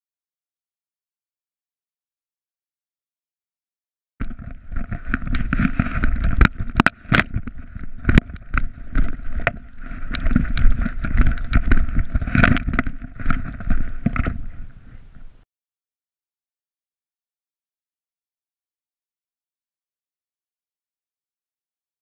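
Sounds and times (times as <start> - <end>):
camera mount knocking and rattling: 4.2 - 14.4.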